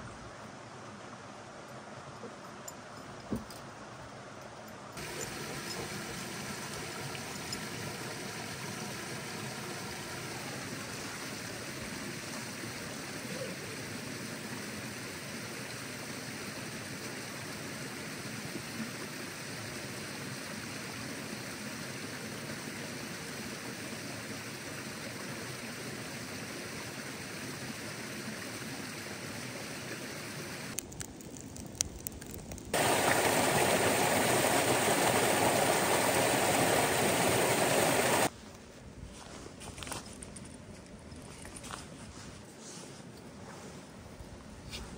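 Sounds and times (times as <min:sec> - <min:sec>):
creek water rushing over rocks: 0:05.0 - 0:30.8, 0:32.8 - 0:38.3
small waterfall pouring: 0:05.0 - 0:38.3.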